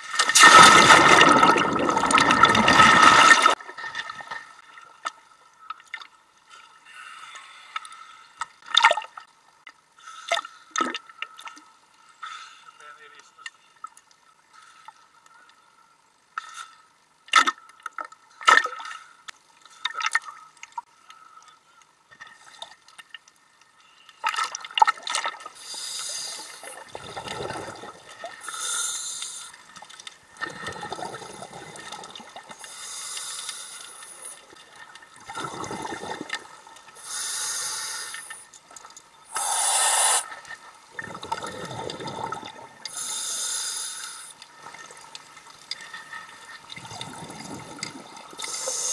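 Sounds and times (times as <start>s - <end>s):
water splashing and lapping: 0.0s - 5.2s, 44.1s - 48.9s
exhaled bubbles rumbling: 0.5s - 3.6s, 26.8s - 28.2s, 30.4s - 32.5s, 35.2s - 36.7s, 40.9s - 42.8s, 46.7s - 48.4s
diver breathing through regulator: 28.4s - 29.6s, 32.6s - 34.4s, 37.0s - 38.4s, 39.3s - 40.3s, 42.9s - 44.4s, 48.4s - 48.9s.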